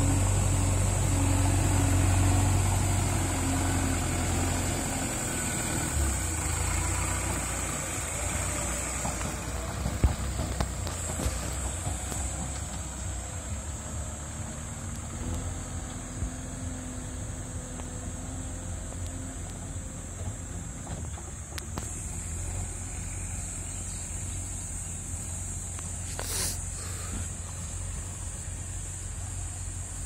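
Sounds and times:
diesel engine running: 0.0s - 30.0s.

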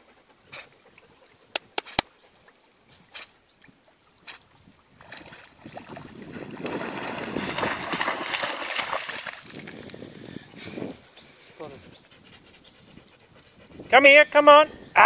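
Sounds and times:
dog splashing through water: 5.0s - 9.9s.

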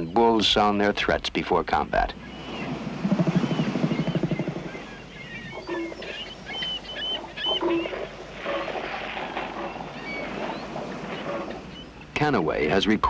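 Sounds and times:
high chirps and lower calls: 2.2s - 8.8s
elephant seal threat call: 2.2s - 12.2s.

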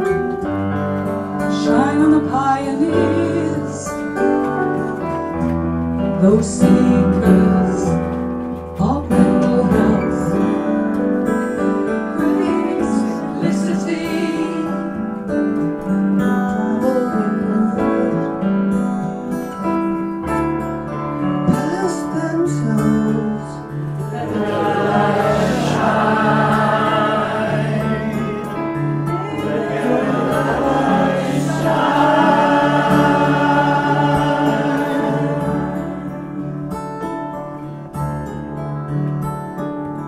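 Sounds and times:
acoustic guitar: 0.0s - 40.0s
keyboard: 0.0s - 40.0s
group of voices singing: 12.2s - 15.0s, 24.1s - 36.6s.

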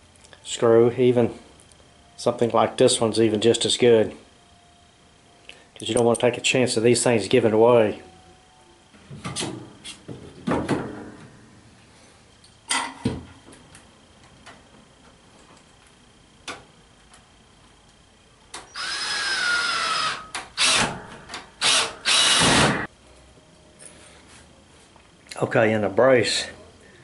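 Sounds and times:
cordless drill driving screws: 18.7s - 20.9s, 21.6s - 22.8s.

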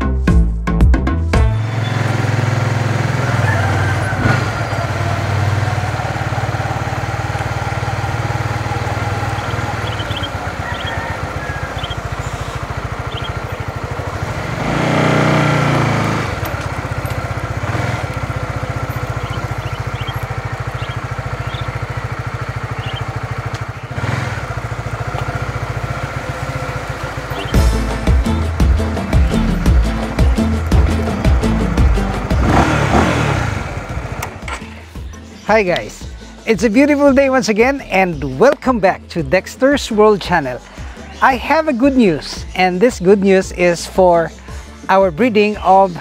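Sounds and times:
motorcycle engine passing: 1.5s - 35.2s.

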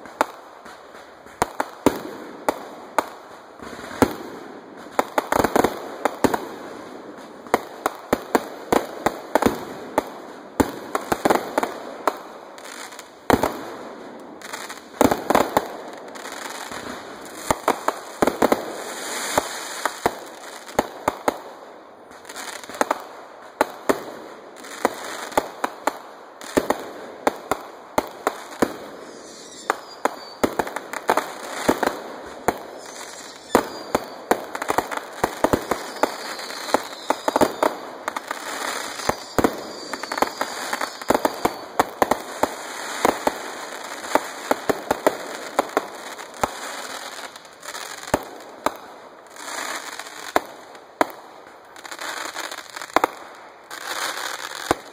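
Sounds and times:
fireworks cracking and popping: 0.0s - 54.9s
falling firework whistles: 28.4s - 43.2s.

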